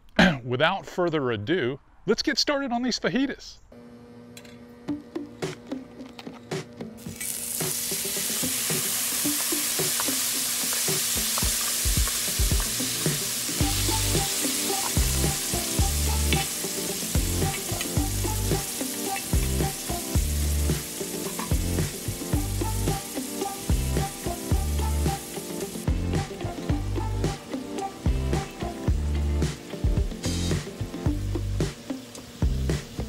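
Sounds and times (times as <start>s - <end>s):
steak sizzling on hot metal: 7.0s - 33.0s
low bass beat: 13.6s - 14.3s, 15.0s - 16.4s, 17.2s - 18.6s, 19.4s - 20.8s, 21.5s - 23.0s, 23.7s - 25.2s, 25.9s - 27.4s, 28.1s - 31.8s, 32.4s - 33.0s.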